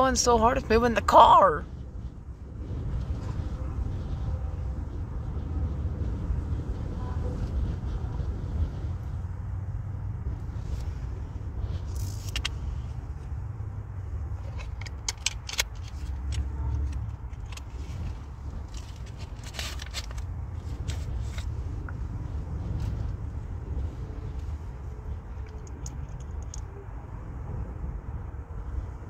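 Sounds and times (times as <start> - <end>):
strong wind buffeting a car: 0.0 - 29.0.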